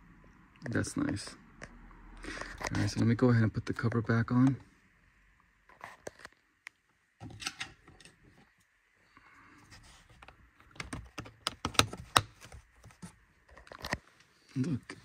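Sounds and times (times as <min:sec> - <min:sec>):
plastic clicking and rattling: 0:10.2 - 0:14.0.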